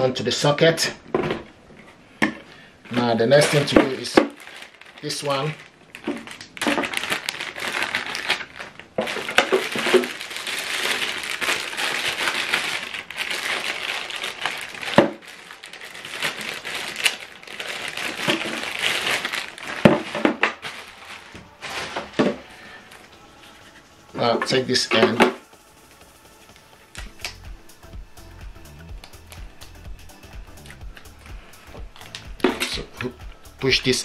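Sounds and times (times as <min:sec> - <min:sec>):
plastic bags crinkling: 0:02.8 - 0:23.6, 0:30.6 - 0:33.2.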